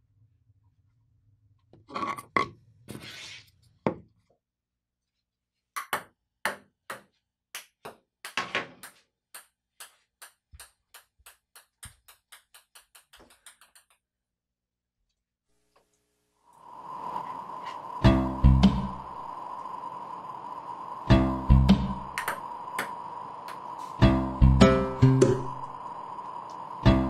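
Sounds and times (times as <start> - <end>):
ping-pong ball bouncing: 5.8 - 14.0.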